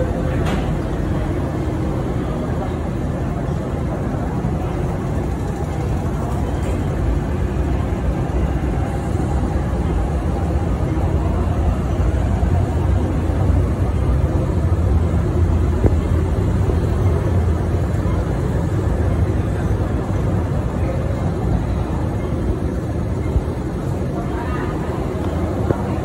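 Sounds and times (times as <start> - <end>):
train wheels rumbling: 0.0 - 26.0.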